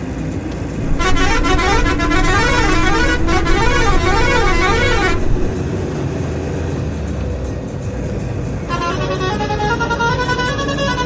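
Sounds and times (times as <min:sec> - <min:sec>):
engine and road noise: 0:00.0 - 0:11.0
musical car horn warbling tune: 0:00.8 - 0:05.6.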